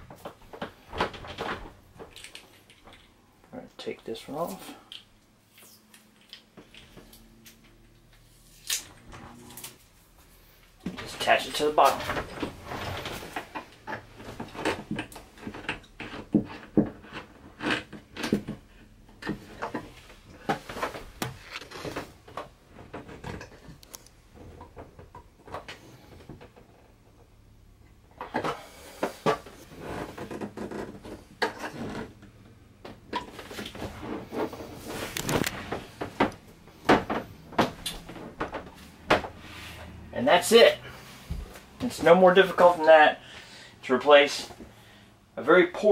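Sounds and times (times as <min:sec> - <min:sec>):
metal hose clicks and rattles: 0:00.1 - 0:03.2.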